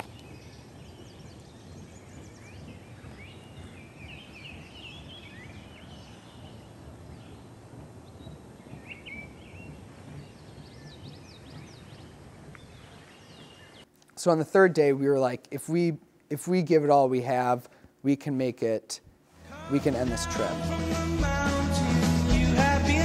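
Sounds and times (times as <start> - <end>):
birds chirping and trilling: 0.0 - 13.9
low steady rumble: 0.0 - 17.1.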